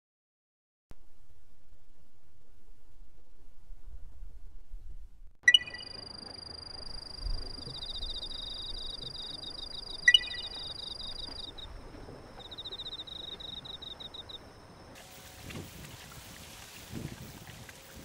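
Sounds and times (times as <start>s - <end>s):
clicking pings: 5.5s - 6.0s, 10.0s - 11.6s
insects whining: 5.5s - 15.8s
crickets chirping: 5.5s - 18.0s.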